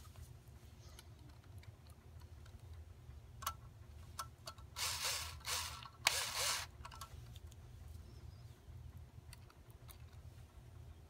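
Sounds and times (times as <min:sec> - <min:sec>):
power screwdriver whirring: 0:04.8 - 0:06.7.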